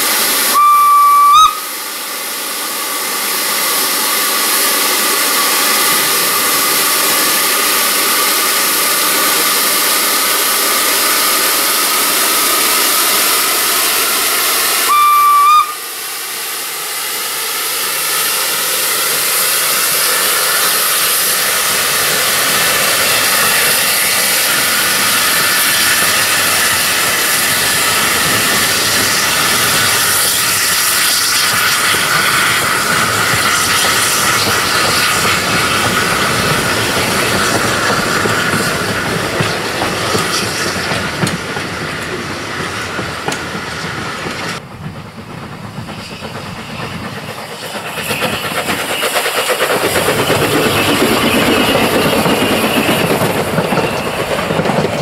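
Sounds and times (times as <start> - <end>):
steam hissing loudly: 0.0 - 55.0
steam whistle toot: 0.5 - 1.7, 14.8 - 15.9.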